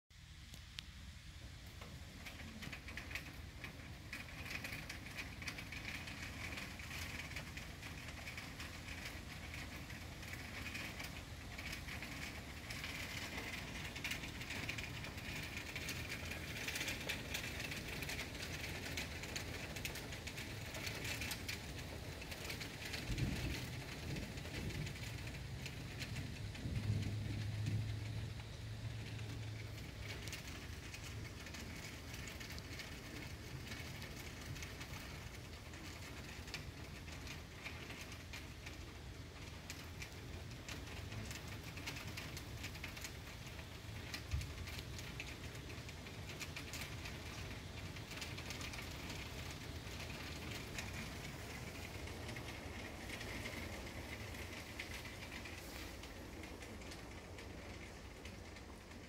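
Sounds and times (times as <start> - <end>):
heavy rain on leaves: 0.2 - 59.0
low rumble: 23.0 - 31.8.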